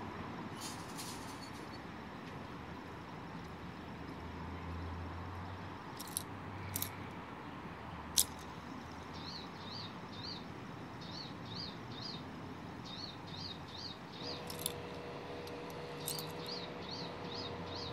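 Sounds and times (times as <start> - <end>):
small bird chirping: 8.2 - 14.9, 15.9 - 17.9.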